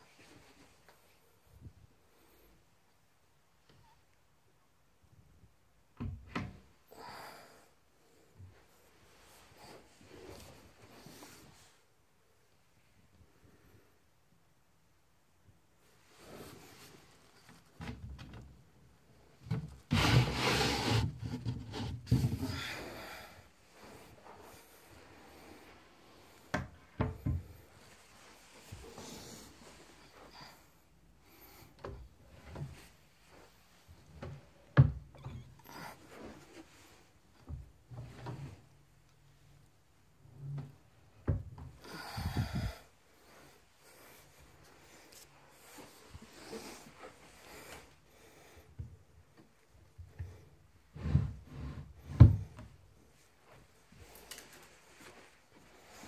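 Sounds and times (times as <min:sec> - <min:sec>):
drawer sliding on runners: 0:19.9 - 0:22.6.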